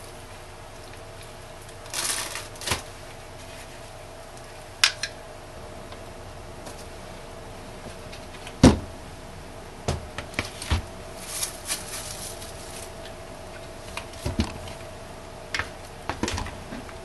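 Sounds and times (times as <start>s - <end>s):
bubble wrap crackling: 0.0s - 4.6s, 10.3s - 15.0s.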